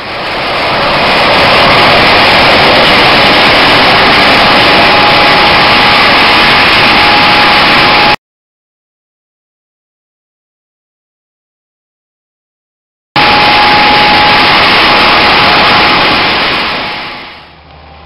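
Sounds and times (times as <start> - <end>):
helicopter turbine and rotor: 0.0 - 8.2, 13.2 - 18.0
thin steady whine: 0.0 - 8.2, 13.2 - 18.0.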